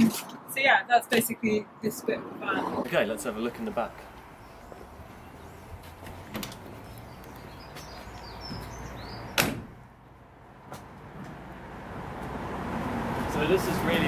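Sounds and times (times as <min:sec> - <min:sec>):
loud door clunk: 0:09.3 - 0:09.8.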